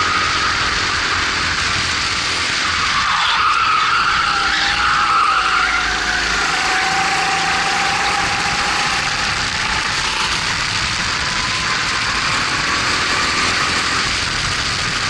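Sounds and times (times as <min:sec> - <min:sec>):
kart engine at high revs: 0:00.0 - 0:15.0
wind noise on microphone: 0:07.8 - 0:15.0.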